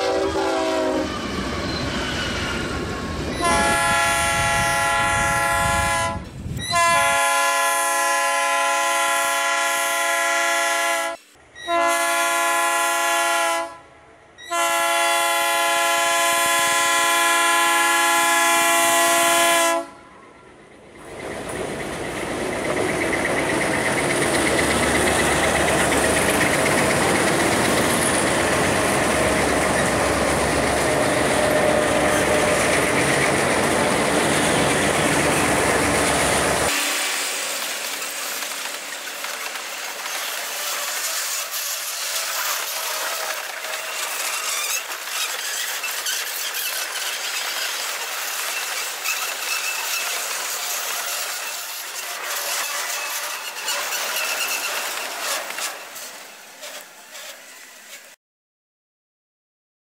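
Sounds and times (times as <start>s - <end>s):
diesel locomotives passing: 0.0s - 58.2s
freight cars rolling past: 20.4s - 40.5s.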